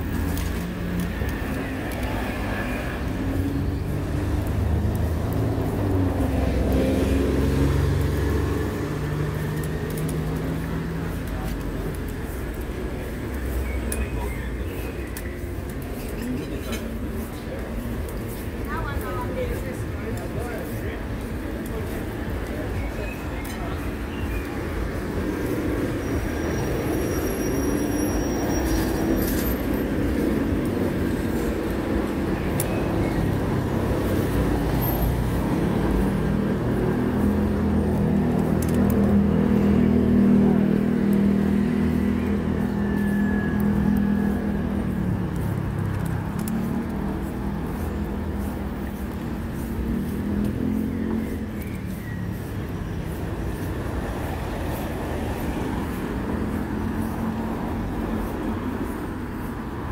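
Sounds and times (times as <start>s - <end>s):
vehicles running by: 0.0s - 59.9s.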